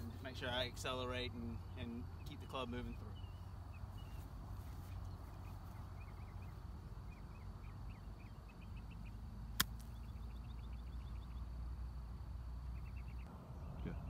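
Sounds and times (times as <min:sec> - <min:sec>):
small birds chirping: 0:00.0 - 0:14.0
golf club striking ball: 0:09.6 - 0:09.9.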